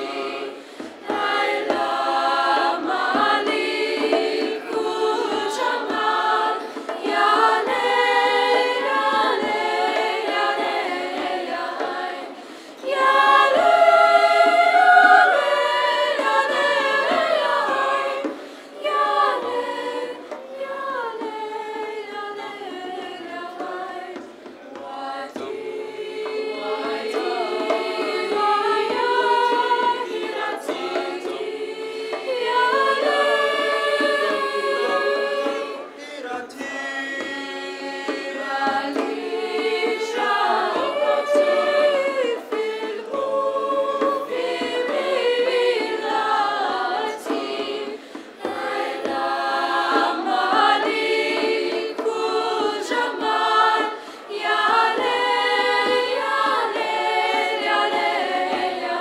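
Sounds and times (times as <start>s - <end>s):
youth choir singing: 0.0s - 59.0s.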